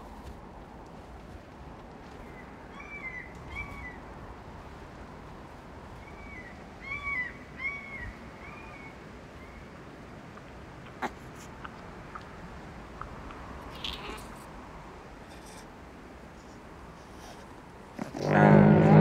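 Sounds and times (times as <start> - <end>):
background hiss: 0.0 - 19.0
bird crying: 2.3 - 4.0, 6.0 - 9.7.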